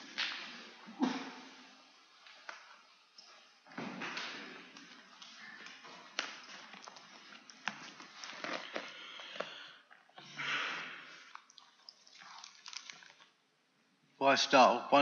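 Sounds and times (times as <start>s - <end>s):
papers rustling: 4.2s - 9.6s.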